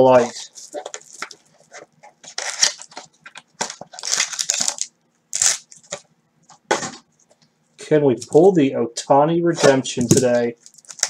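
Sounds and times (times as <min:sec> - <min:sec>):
foil wrappers crinkling and tearing: 0:00.1 - 0:06.0, 0:09.7 - 0:11.0.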